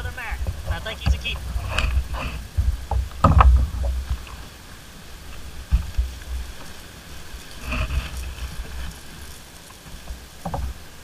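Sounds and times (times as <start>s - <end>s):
water lapping against a hull: 0.0s - 11.0s
wind buffeting microphone: 0.0s - 11.0s
thumps on kayak: 0.4s - 4.3s.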